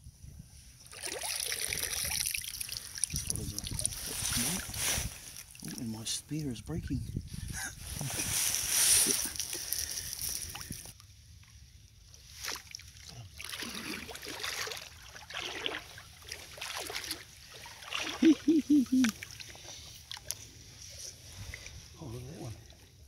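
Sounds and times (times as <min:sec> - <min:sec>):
wading through shallow water: 0:00.8 - 0:06.3, 0:12.0 - 0:23.0
quick pitched pulses: 0:18.1 - 0:19.2.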